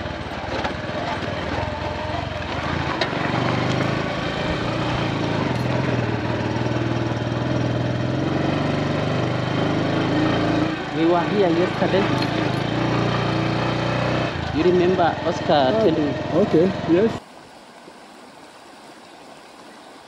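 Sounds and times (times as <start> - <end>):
motorcycle engine running: 0.0 - 17.2.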